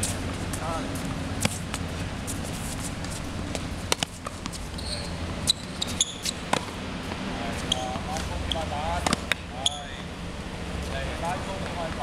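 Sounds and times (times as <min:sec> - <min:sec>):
tennis balls struck by racquets: 0:00.5 - 0:01.9, 0:03.0 - 0:04.6, 0:05.2 - 0:10.1.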